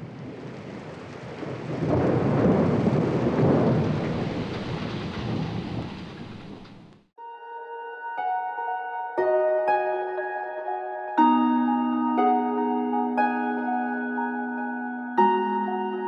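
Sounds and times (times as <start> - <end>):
rolling thunder: 0.0 - 7.0
steady rain: 0.0 - 7.1
soft harp-like music: 7.2 - 16.0.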